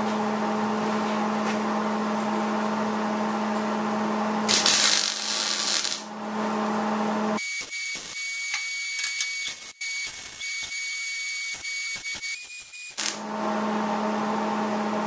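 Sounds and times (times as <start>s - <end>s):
welder hum with hiss: 4.5s - 6.1s, 7.4s - 13.3s
welding arc crackle: 4.5s - 6.1s, 7.4s - 13.2s.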